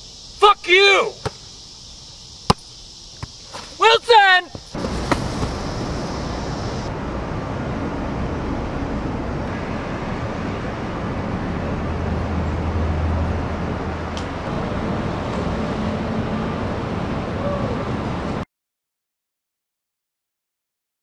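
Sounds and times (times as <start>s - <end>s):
rumbling background noise with hiss: 0.0s - 18.4s.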